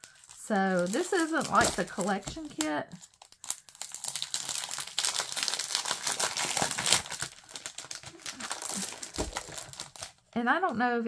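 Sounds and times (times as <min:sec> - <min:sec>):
plastic packaging crinkling: 0:00.0 - 0:10.4.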